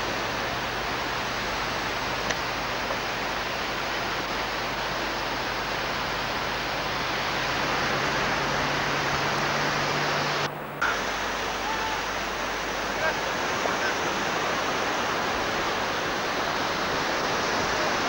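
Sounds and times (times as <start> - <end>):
gale-force wind on microphone: 0.1 - 18.0.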